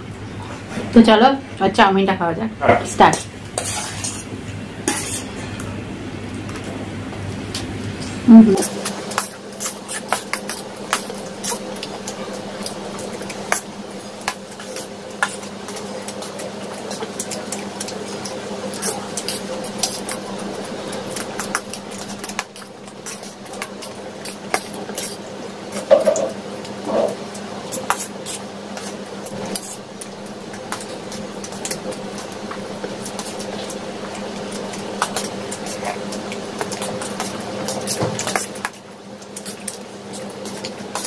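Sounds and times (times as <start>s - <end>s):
steady low hum: 0.0s - 41.0s
forks clinking on plates: 25.8s - 26.3s.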